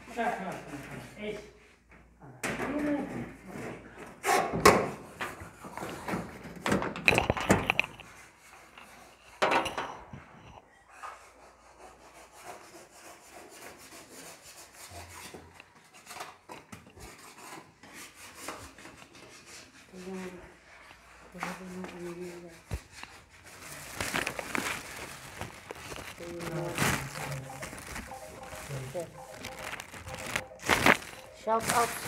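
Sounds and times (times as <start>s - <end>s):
rubbing and scraping: 10.8s - 32.0s.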